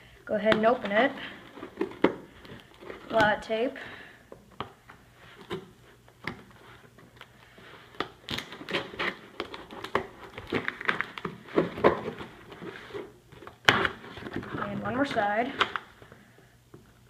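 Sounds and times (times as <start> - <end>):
tape crackling and crinkling: 0.4 - 3.6, 4.6 - 16.3
scissors cutting packing tape: 8.0 - 11.3.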